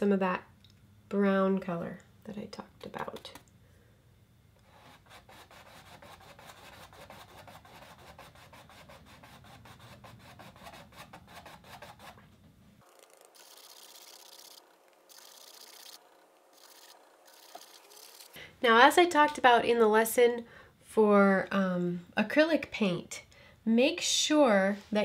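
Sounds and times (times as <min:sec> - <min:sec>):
paintbrush scrubbing on canvas: 0:04.7 - 0:12.2.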